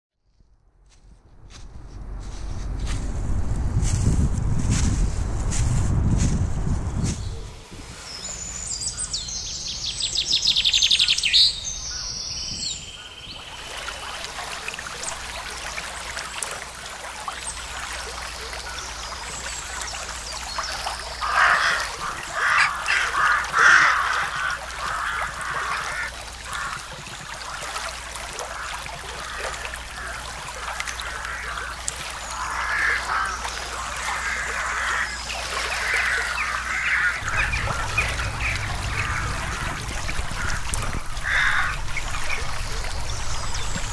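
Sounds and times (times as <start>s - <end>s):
trickling creek: 0.9s - 6.3s, 7.0s - 43.9s
birds calling and singing: 7.0s - 16.2s, 30.9s - 43.9s.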